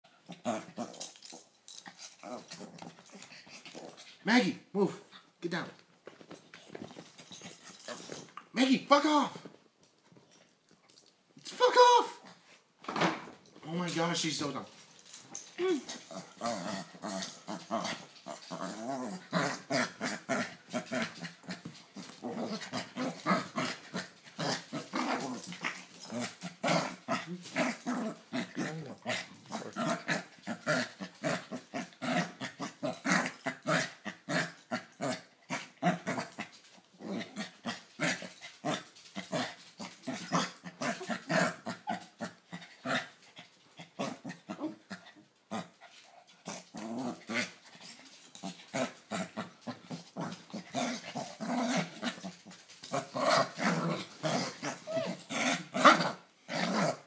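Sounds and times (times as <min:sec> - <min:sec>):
small dog play-growling: 0:00.2 - 0:04.2, 0:06.2 - 0:08.5, 0:15.0 - 0:57.0.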